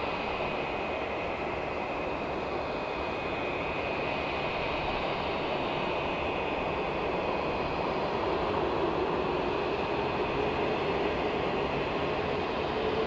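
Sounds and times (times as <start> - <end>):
jet engines taxiing: 0.0 - 13.0.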